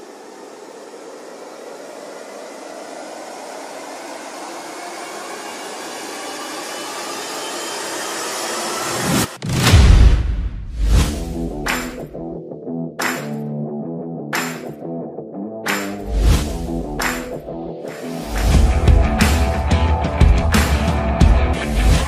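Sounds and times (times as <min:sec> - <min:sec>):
rushing riser sound effect: 0:00.0 - 0:12.2, 0:15.7 - 0:22.0
loud hit: 0:09.2 - 0:12.2.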